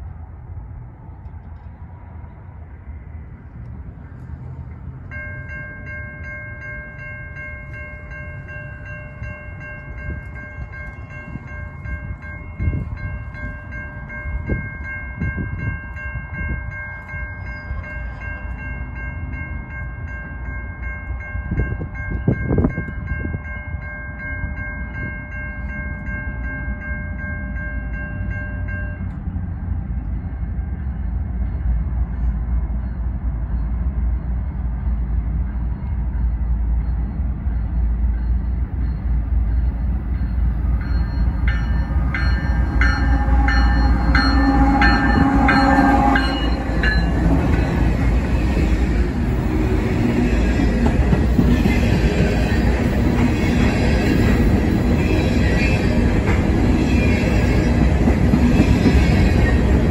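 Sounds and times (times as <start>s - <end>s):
train rumble: 0.0s - 59.9s
train horn long note: 42.6s - 47.8s.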